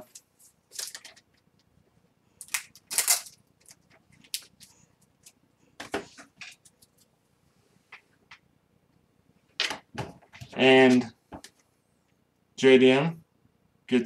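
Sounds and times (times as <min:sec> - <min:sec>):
trading cards clicking and rustling: 0:02.4 - 0:07.1.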